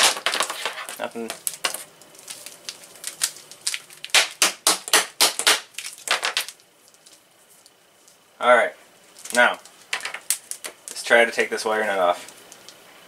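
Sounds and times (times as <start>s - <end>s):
wires clacking against table: 9.2s - 11.0s.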